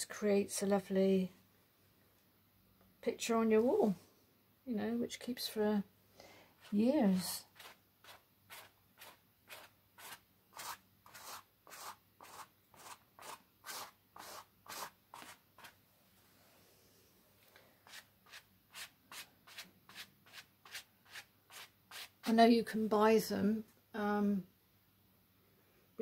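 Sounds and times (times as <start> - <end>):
paintbrush scrubbing on canvas: 6.6 - 15.8, 17.8 - 22.3.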